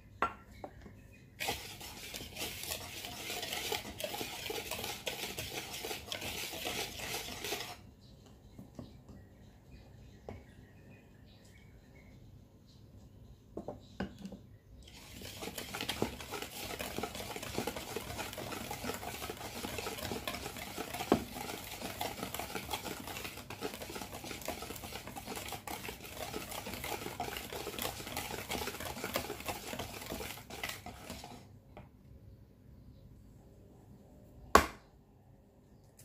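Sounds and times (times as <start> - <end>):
whisk beating batter in bowl: 1.4 - 7.8, 14.8 - 31.5.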